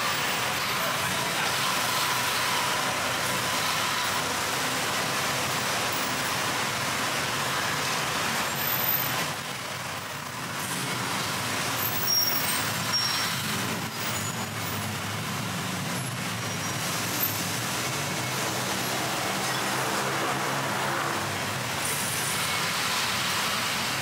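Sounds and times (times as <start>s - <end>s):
road traffic: 0.0s - 24.0s.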